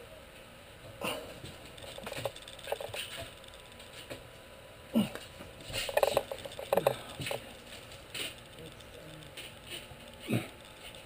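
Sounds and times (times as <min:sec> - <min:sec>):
quick clicks and rattles: 0:01.5 - 0:04.1, 0:05.6 - 0:11.0.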